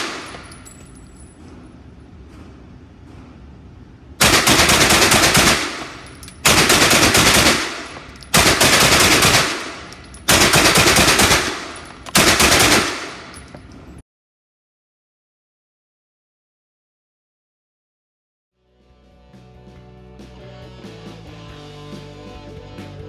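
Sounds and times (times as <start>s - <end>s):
rapid gunshots echoing indoors: 0.0s - 0.8s, 4.2s - 13.5s.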